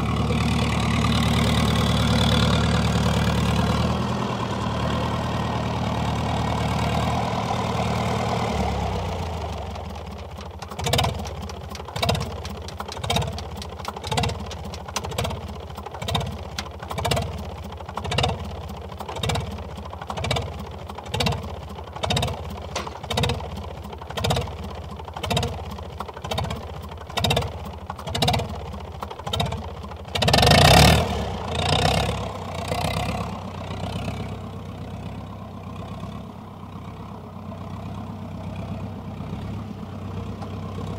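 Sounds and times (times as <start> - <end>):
diesel tractor engine idling: 0.0 - 40.9
loud clatter: 22.0 - 24.6.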